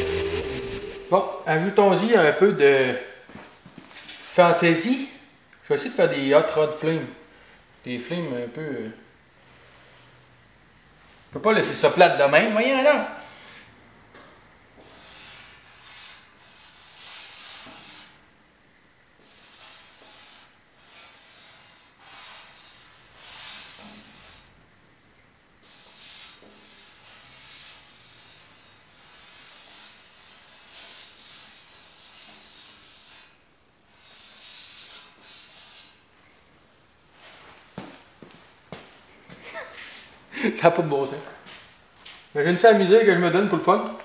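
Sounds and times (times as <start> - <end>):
drawing tip rubbing on metal: 14.8 - 18.2, 19.2 - 24.5, 25.6 - 36.0.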